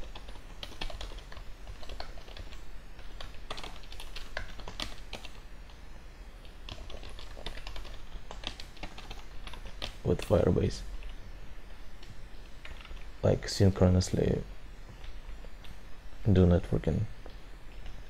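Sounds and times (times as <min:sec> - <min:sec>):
typing on computer keyboard: 0:00.0 - 0:05.4, 0:06.4 - 0:10.0.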